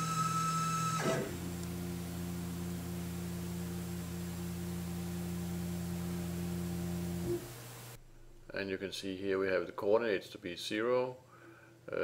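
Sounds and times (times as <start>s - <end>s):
stepper motors humming: 0.0s - 8.0s.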